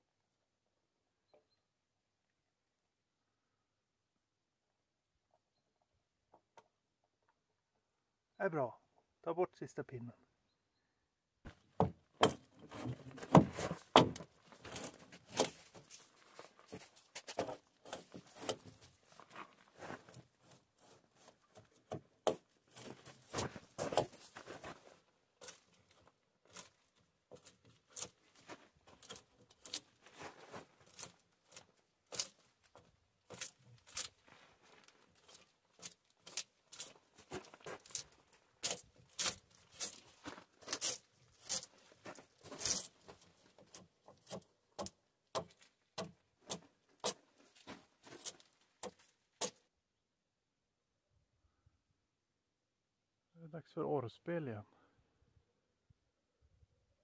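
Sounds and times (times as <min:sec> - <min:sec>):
bark scraped off log: 0:37.8 - 0:43.0.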